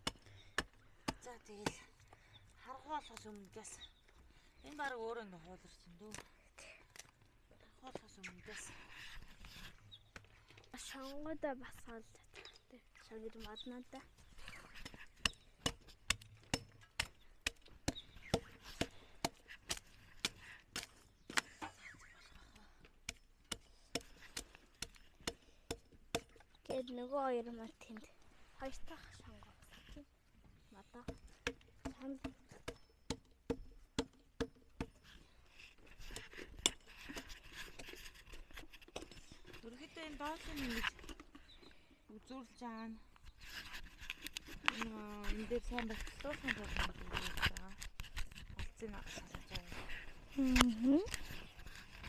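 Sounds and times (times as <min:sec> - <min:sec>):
axe chopping wood: 0:00.0 - 0:01.9, 0:14.8 - 0:21.5, 0:23.0 - 0:26.4, 0:31.0 - 0:35.0
rustling: 0:35.0 - 0:41.8, 0:43.2 - 0:52.0.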